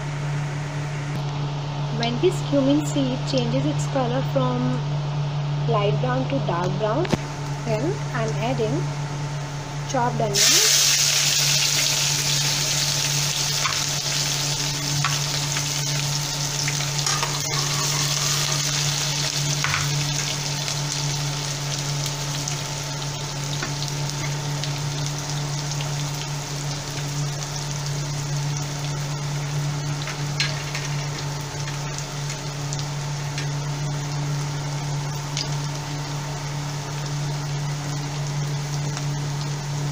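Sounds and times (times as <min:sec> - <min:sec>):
low hum: 0:00.0 - 0:39.9
onion sizzling in oil: 0:10.0 - 0:39.9.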